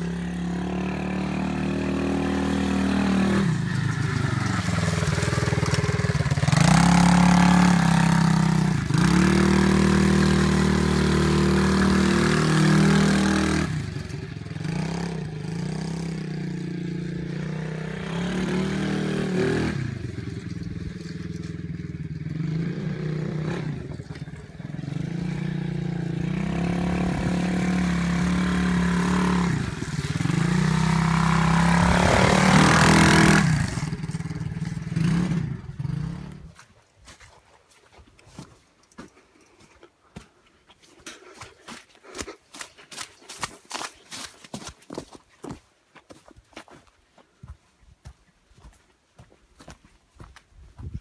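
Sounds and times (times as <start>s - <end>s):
pit bike engine revving: 0.0s - 36.6s.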